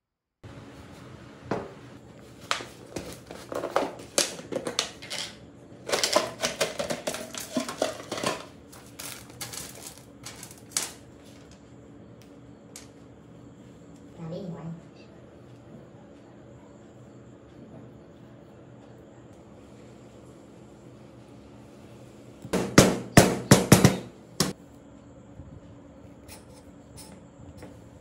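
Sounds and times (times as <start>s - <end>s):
small parts rattling on metal bench: 3.5s - 11.0s.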